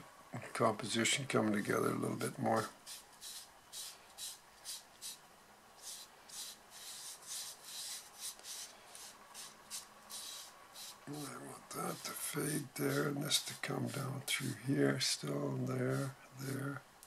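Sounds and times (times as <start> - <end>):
pastel rubbing on paper: 2.8 - 5.2, 5.8 - 12.2, 15.8 - 16.2.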